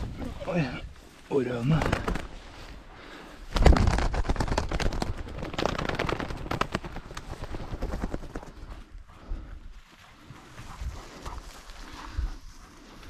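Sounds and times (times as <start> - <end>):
bird wingbeats flapping: 1.6 - 2.6, 3.4 - 8.7.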